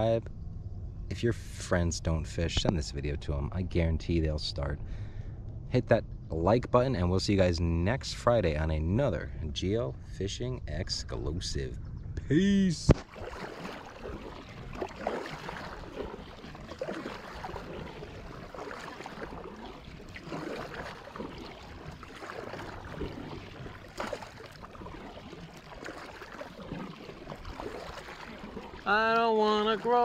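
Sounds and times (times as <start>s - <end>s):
water splashing around hull: 12.8s - 30.0s
kayak paddle strokes in water: 12.9s - 30.0s.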